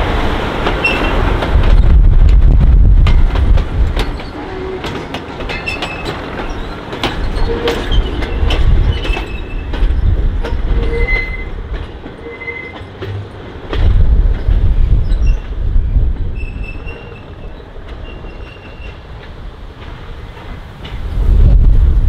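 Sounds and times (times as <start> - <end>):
wheels clicking over rail joints: 0.0 - 21.7
wheel squeals: 0.8 - 1.2, 4.0 - 13.0, 16.4 - 19.0
heavy low rumble: 1.3 - 4.0, 13.7 - 16.7, 21.0 - 22.0.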